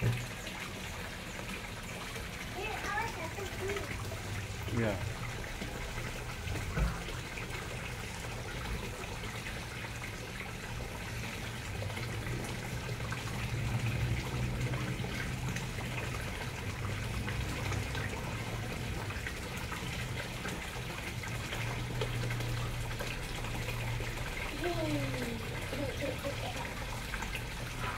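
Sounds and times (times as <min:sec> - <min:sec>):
water pouring over spillway: 0:00.0 - 0:27.9.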